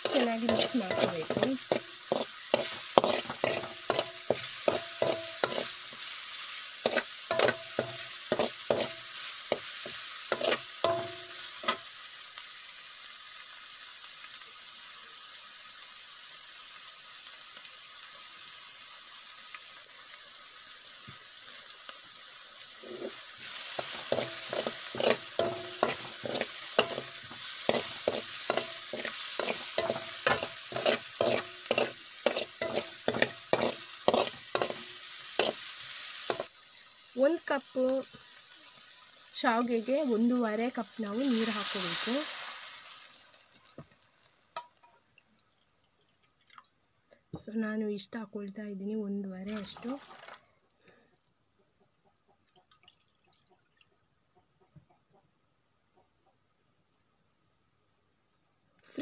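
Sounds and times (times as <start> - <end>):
metal spoon scraping a pan: 0.0 - 11.8, 22.8 - 36.5
food sizzling in oil: 0.0 - 46.4, 48.0 - 50.4.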